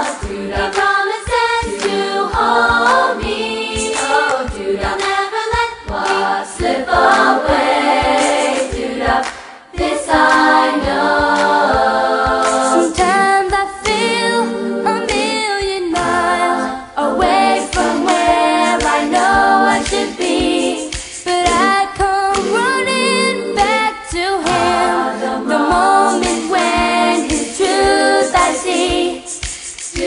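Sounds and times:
choir singing unaccompanied: 0.0 - 30.0.

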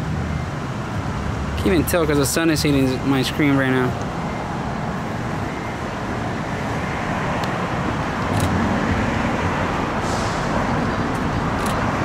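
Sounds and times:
road traffic rumble: 0.0 - 12.0
hiss: 10.0 - 10.8.

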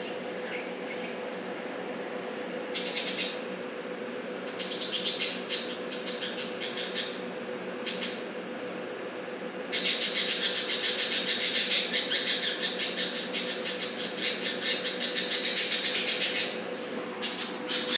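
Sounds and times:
steady low hum: 0.0 - 17.9
budgerigar rasping calls: 9.7 - 16.6.

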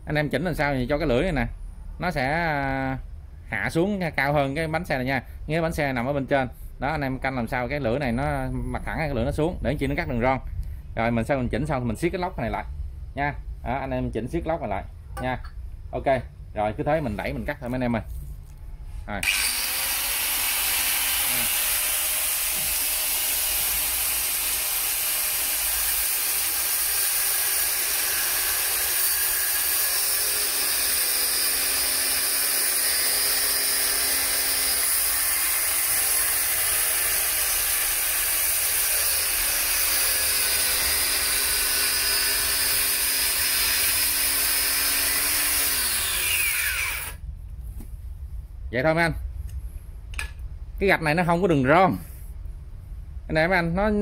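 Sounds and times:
grinder winding down whine: 19.2 - 32.6, 40.0 - 47.2
angle grinder cutting tile joint: 19.2 - 47.2.

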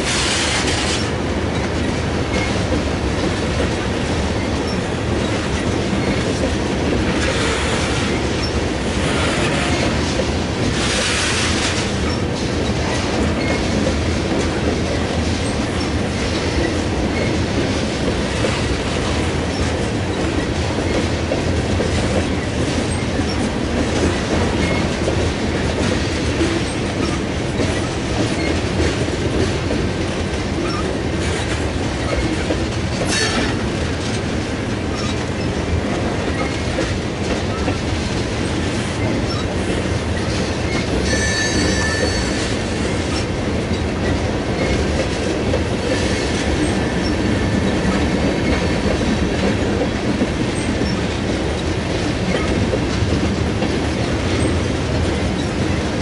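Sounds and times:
clickety-clack over rail joints: 0.0 - 56.0
train wheels rumbling on rails: 0.0 - 56.0.

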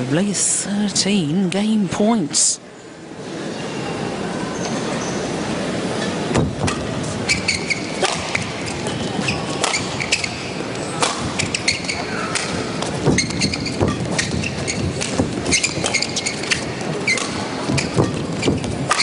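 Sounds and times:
crowd hum: 0.0 - 19.0
shoe squeaks on court floor: 4.5 - 19.0
racket hitting shuttlecock: 6.3 - 19.0.

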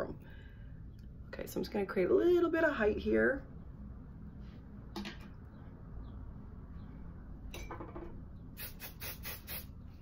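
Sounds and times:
short hissing noises: 8.5 - 9.8.

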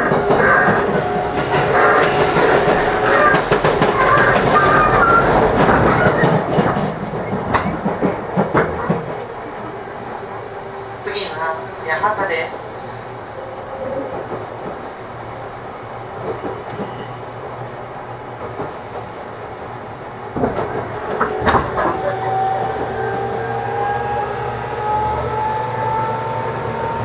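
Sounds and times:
wheels clacking over track: 0.0 - 9.8
wheel and rail noise: 0.0 - 27.0.

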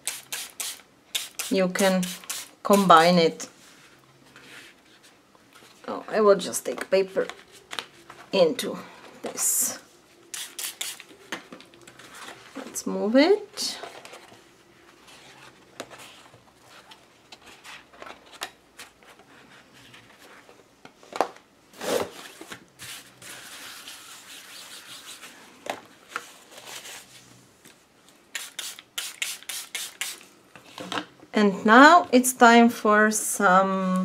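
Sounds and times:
spray bottle spritzes: 10.3 - 11.0, 28.4 - 30.2.

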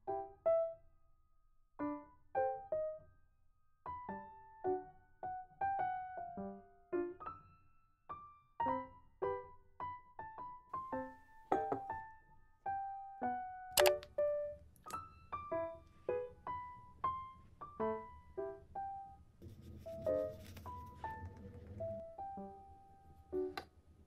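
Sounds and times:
slow piano music: 0.0 - 1.0, 1.8 - 24.0
sharp click: 13.8 - 14.1.

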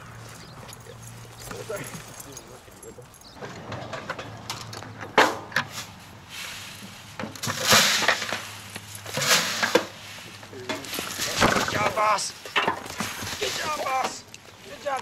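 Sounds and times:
dogs digging in dirt and straw: 0.0 - 4.4, 5.6 - 15.0.

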